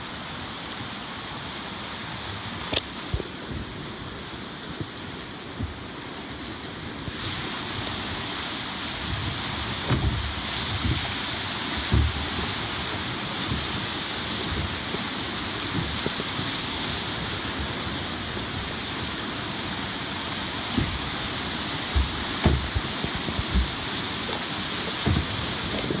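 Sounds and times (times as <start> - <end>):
whitewater rapids rushing: 0.0 - 26.0
low thumps: 21.9 - 26.0.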